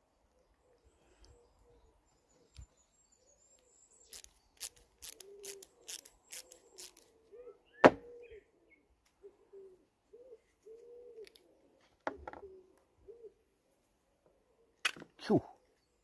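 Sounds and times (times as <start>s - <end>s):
bird hooting softly: 7.1s - 11.4s, 12.4s - 13.4s.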